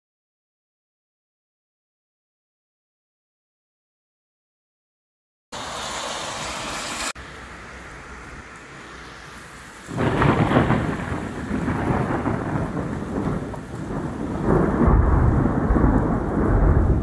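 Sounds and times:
rain falling: 5.6 - 17.0
thunder rumbling: 9.8 - 17.0.

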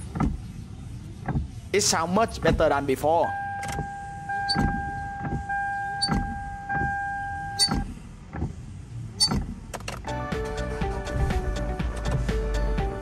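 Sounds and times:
wiper arm knocking: 0.0 - 0.5, 1.2 - 1.6
windshield wipers sweeping: 0.0 - 1.7, 2.3 - 2.8, 3.6 - 9.9.

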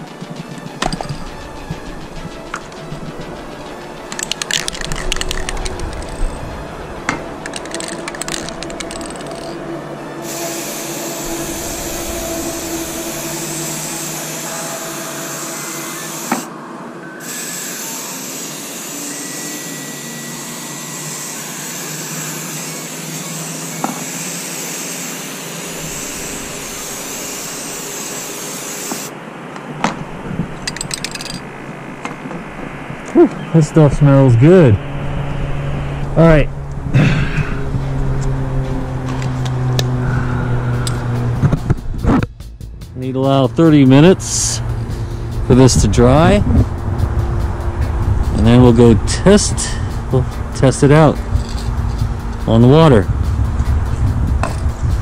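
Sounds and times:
aerosol can spraying: 23.6 - 29.1.

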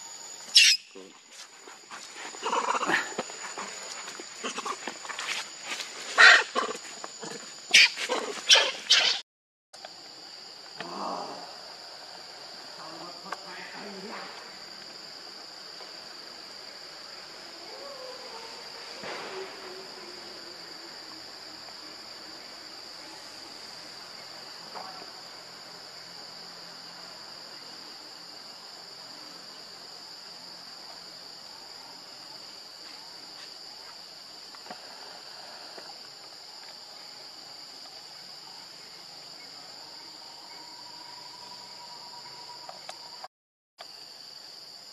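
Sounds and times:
high-pitched insect buzzing: 0.0 - 1.2.

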